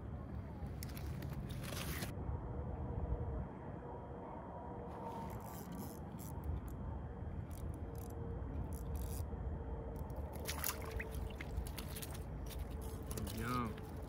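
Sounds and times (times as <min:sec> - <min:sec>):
fishing reel clicks: 0:08.7 - 0:09.2
fish splashing: 0:10.3 - 0:13.4
water dripping: 0:10.3 - 0:14.0.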